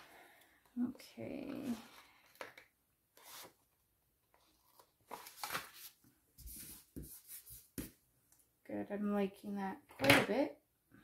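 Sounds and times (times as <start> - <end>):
paper pages rustling: 4.4 - 7.7.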